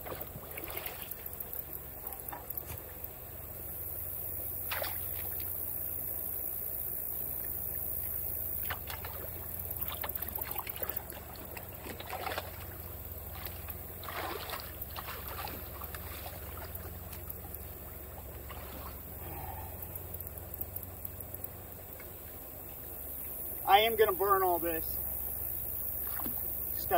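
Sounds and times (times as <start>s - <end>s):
rake splashing through water: 0.0s - 1.4s, 4.6s - 5.6s, 8.6s - 17.8s, 18.4s - 19.1s.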